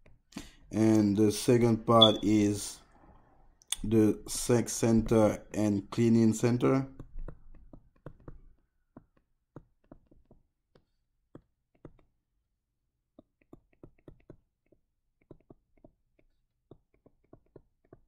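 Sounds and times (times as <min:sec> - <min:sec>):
stylus tapping on touchscreen: 0:01.9 - 0:02.4, 0:06.7 - 0:12.2, 0:13.1 - 0:18.0.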